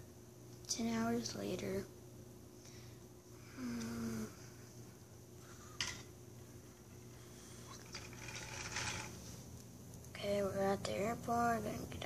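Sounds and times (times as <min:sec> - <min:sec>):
person humming: 0:03.4 - 0:04.5.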